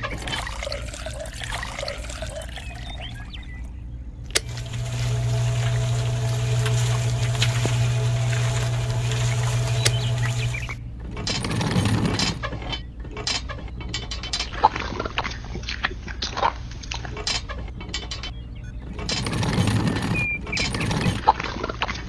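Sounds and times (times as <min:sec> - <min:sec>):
wet cement pouring: 0:00.0 - 0:03.2, 0:04.4 - 0:12.4
clicks taps and scraping: 0:04.3 - 0:22.0
rustling: 0:04.4 - 0:12.4.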